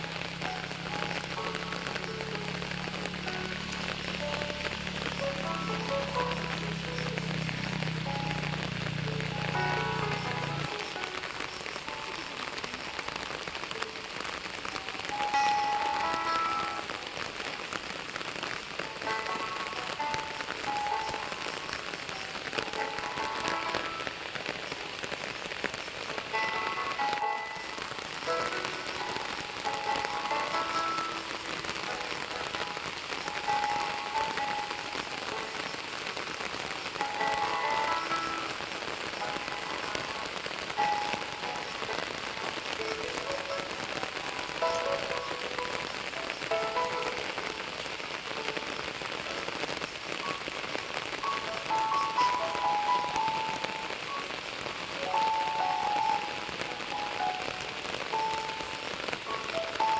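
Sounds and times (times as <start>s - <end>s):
melody of held notes: 0.0s - 12.7s, 13.5s - 59.9s
rain pattering: 0.0s - 59.9s.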